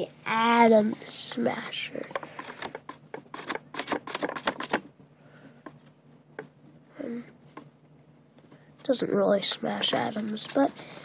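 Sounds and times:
paper rustling: 1.6s - 4.8s.

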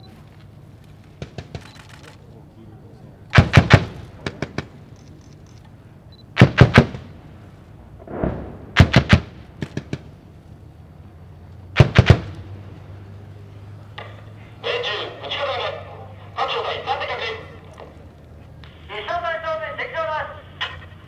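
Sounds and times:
automatic gunfire bursts: 3.4s - 4.7s, 6.4s - 7.0s, 8.1s - 10.0s
deep dull boom: 7.8s - 10.1s.

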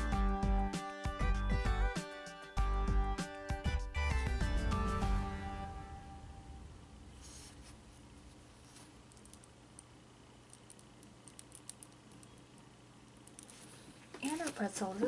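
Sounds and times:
background music: 0.0s - 6.9s.

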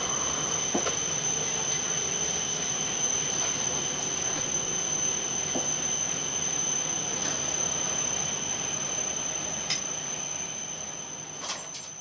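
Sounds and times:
train interior rumble and hiss: 0.0s - 6.2s
high whine: 0.0s - 12.0s.

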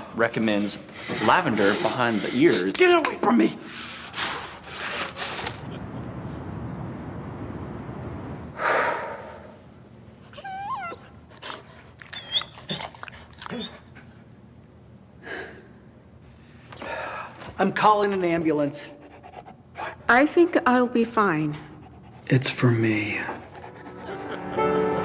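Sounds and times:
paper bag crinkling: 4.6s - 5.8s
man breathing hard: 8.6s - 9.6s
dog whimpering: 10.3s - 13.9s.

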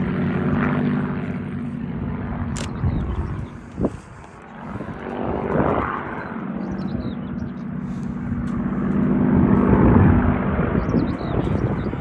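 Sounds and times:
propeller plane flying past: 0.0s - 12.0s.

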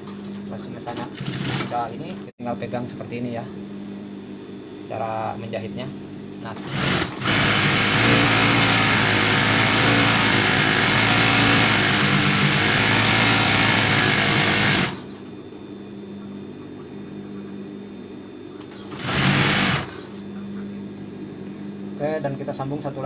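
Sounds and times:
steady low hum: 0.0s - 12.7s, 13.4s - 23.0s
sewing machine stitching: 1.2s - 1.8s, 6.6s - 15.1s, 18.7s - 20.1s.

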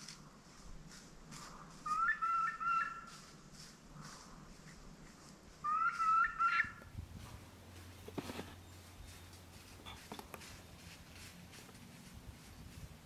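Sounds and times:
turkey hen yelping: 1.8s - 3.2s, 5.6s - 6.9s.

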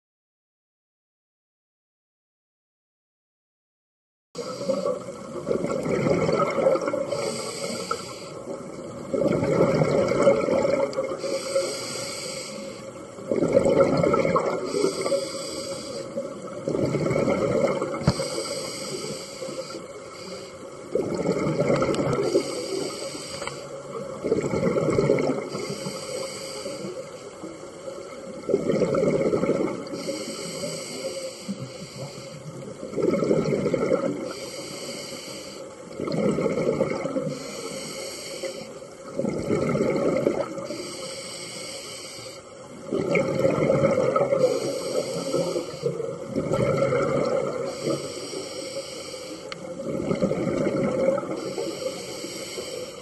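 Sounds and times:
exhaled air bubbling: 4.4s - 53.0s
regulator hissing inhalations: 7.1s - 8.5s, 11.2s - 13.0s, 14.6s - 16.3s, 18.0s - 20.8s, 22.2s - 23.8s, 25.5s - 27.4s, 29.9s - 32.5s, 34.3s - 35.8s, 37.3s - 38.9s, 40.6s - 42.6s, 44.4s - 46.2s, 47.6s - 49.6s, 51.3s - 53.0s.

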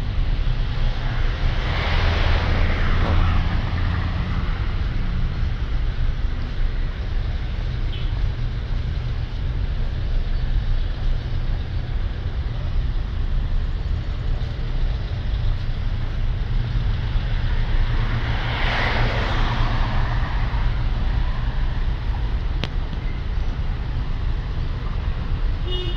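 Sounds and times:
road noise rumble: 0.0s - 25.9s
vehicle passing close by: 1.0s - 5.3s, 17.0s - 21.9s.

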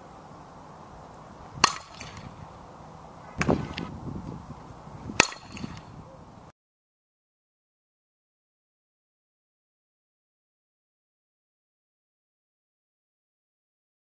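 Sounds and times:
bat cracking ball: 1.6s - 2.5s, 3.3s - 4.0s, 5.1s - 6.0s.

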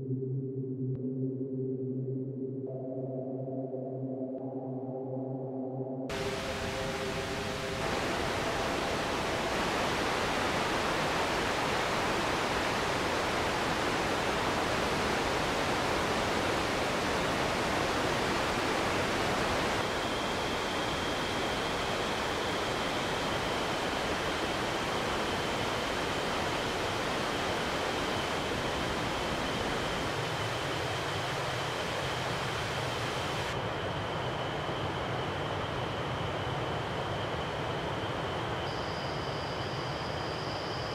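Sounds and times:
thin high whistling tone: 38.6s - 40.9s.

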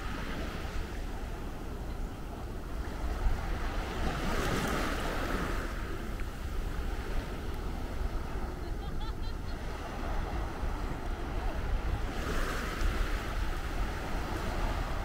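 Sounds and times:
small waves washing onto beach: 0.0s - 15.0s
wind rumbling on microphone: 0.0s - 15.0s.

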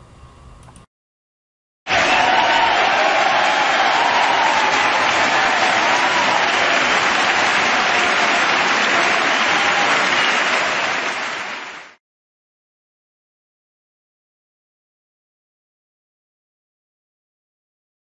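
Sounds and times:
crowd applauding: 1.9s - 12.0s.

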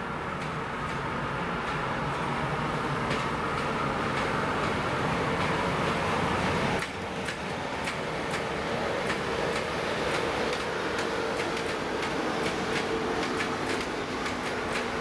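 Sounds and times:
freight train running noise: 0.0s - 15.0s
wagon wheels clicking over rail joints: 6.8s - 15.0s.

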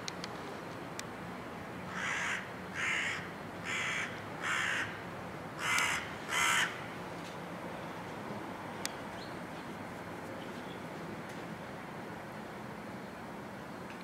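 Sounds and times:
crow cawing: 1.9s - 5.0s, 5.6s - 6.9s.

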